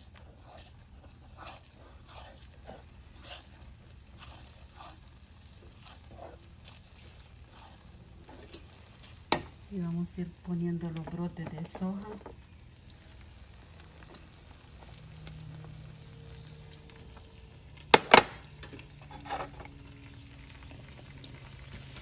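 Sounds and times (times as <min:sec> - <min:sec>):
wooden spatula stirring: 0:00.0 - 0:15.0
food sizzling in frying pan: 0:00.0 - 0:17.8, 0:18.5 - 0:22.0.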